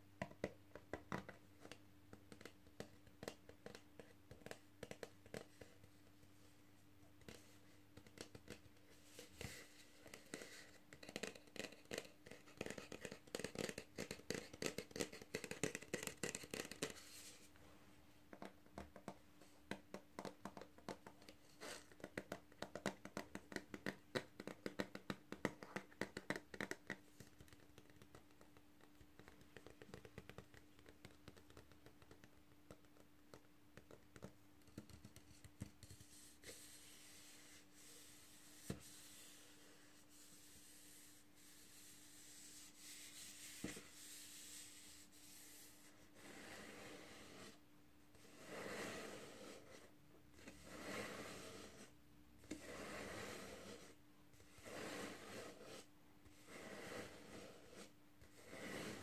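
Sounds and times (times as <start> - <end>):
fingernails tapping on cardboard: 22.0 - 36.0
soft rubbing: 35.3 - 47.6.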